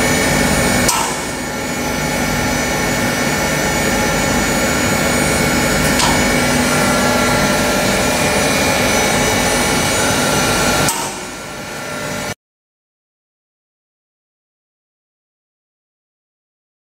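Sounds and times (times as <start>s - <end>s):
electric grinding mill running: 0.0s - 12.4s.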